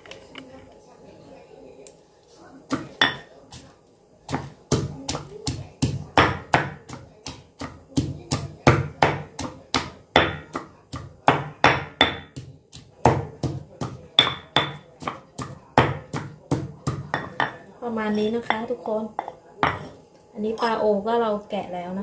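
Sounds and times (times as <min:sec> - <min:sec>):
stone pestle pounding in mortar: 0:02.7 - 0:03.7, 0:04.3 - 0:17.6.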